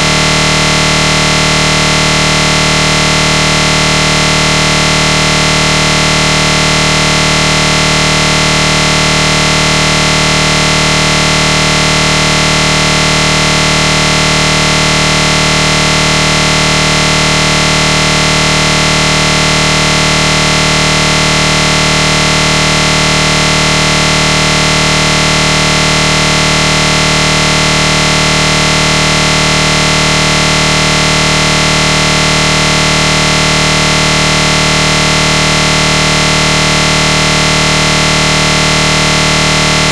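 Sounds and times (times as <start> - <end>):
loud steady buzzing: 0.0 - 39.9.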